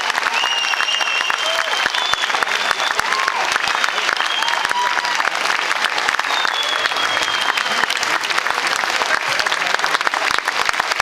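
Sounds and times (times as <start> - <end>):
crowd applauding and cheering: 0.0 - 11.0
long whistle: 0.3 - 5.0, 6.2 - 7.8.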